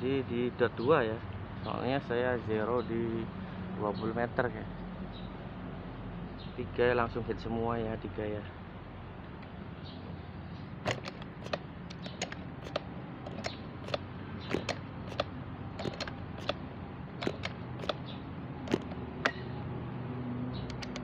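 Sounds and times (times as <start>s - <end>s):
air rifle handling clicks and creaks: 10.8s - 16.6s, 17.2s - 18.1s, 18.7s - 19.5s, 20.6s - 21.0s.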